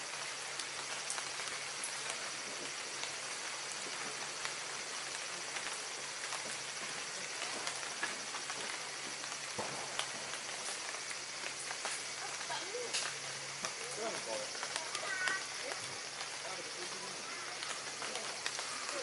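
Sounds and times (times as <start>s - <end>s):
outdoor background hiss: 0.0s - 19.0s
faint ticks: 9.2s - 16.4s.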